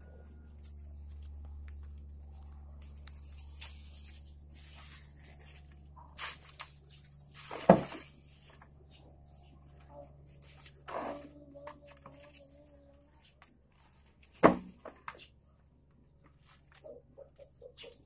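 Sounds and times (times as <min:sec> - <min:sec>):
steady low hum: 0:00.0 - 0:18.0
palm leaves rustling and tearing: 0:00.5 - 0:08.7, 0:10.3 - 0:11.3.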